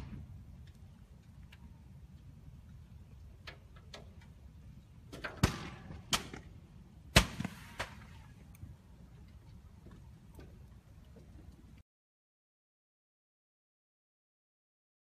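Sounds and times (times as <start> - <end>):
low steady fire rumble: 0.0 - 11.8
fire popping and banging: 5.0 - 11.7.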